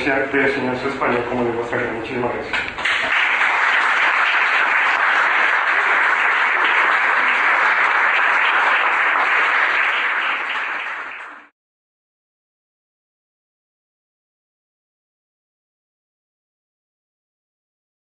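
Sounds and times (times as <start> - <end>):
audience applauding: 2.8 - 11.5.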